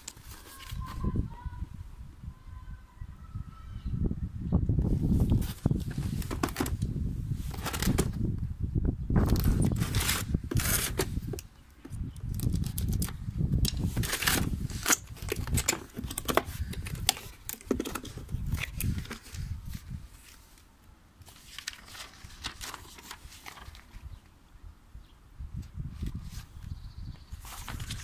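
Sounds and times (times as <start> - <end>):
cardboard scraping and rustling: 0.0 - 1.1, 5.2 - 6.8, 7.4 - 8.2, 9.2 - 11.4, 13.8 - 20.6, 21.2 - 24.0, 27.4 - 28.0
paper pages leafed through: 0.0 - 1.3, 4.9 - 8.2, 9.2 - 11.4, 12.3 - 24.3, 27.3 - 28.0
sharp clicks and crackles: 9.2 - 19.4.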